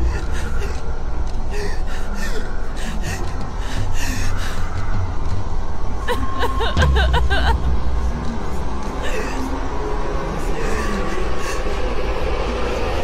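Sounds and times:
steady low rumble: 0.0 - 13.0
woman sobbing and gasping: 1.5 - 4.6, 6.0 - 7.7, 8.8 - 9.6.

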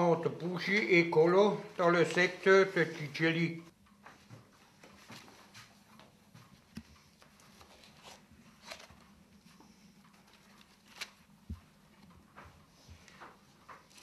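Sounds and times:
paper rustling: 1.9 - 3.2, 7.2 - 14.0.

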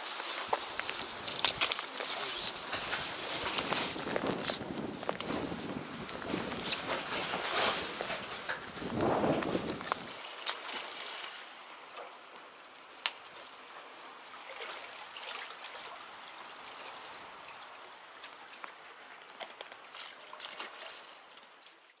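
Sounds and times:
water gently lapping: 0.0 - 22.0
small water splashes: 9.5 - 21.9.

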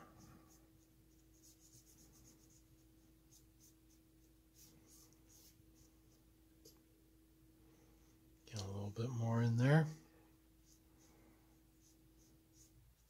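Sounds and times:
paintbrush strokes on wood: 0.0 - 6.8, 10.6 - 13.0
faint steady hum: 0.0 - 13.0.

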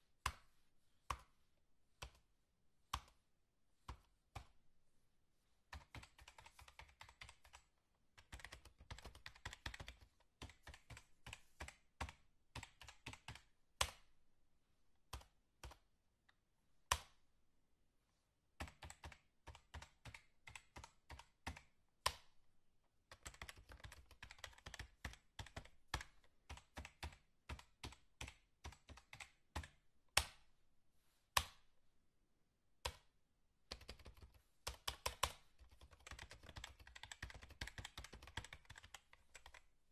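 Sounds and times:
rapid keyboard typing: 5.7 - 14.0, 18.6 - 21.8, 23.1 - 29.8, 33.7 - 39.7.

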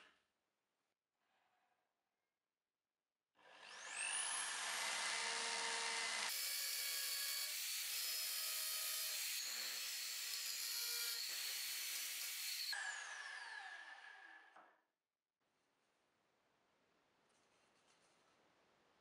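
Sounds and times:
drill whining and boring into wood: 3.4 - 14.6.

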